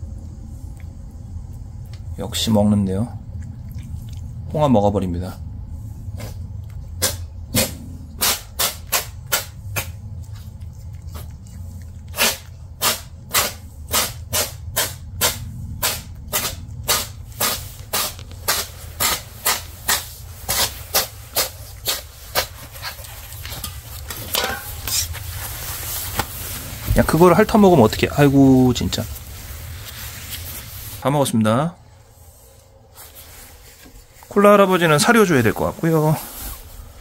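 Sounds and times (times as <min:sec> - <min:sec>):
low hum: 0:00.0 - 0:37.0
cat chewing wet food: 0:00.1 - 0:02.2, 0:03.1 - 0:04.6, 0:06.2 - 0:08.2, 0:08.8 - 0:19.0, 0:21.0 - 0:24.3.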